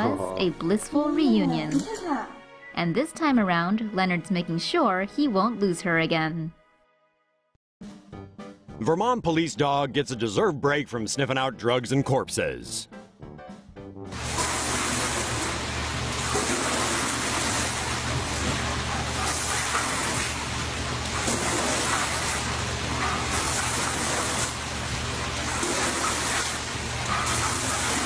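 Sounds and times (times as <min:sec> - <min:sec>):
water spray hissing on car: 0:14.2 - 0:28.0.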